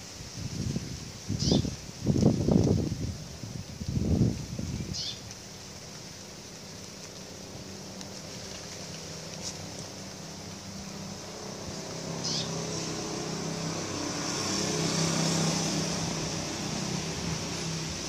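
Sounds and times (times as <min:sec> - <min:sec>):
low engine-like hum: 0:05.4 - 0:18.0.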